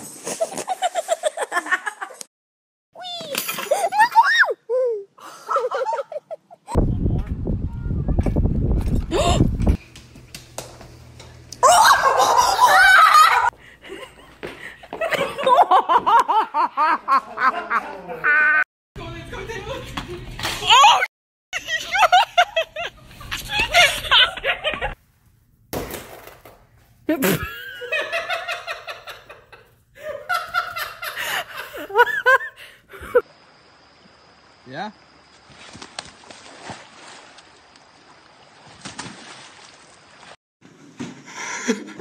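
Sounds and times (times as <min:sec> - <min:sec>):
person laughing hard: 0:11.6 - 0:14.3, 0:14.9 - 0:18.6, 0:21.6 - 0:25.0, 0:27.1 - 0:29.2, 0:30.0 - 0:33.2.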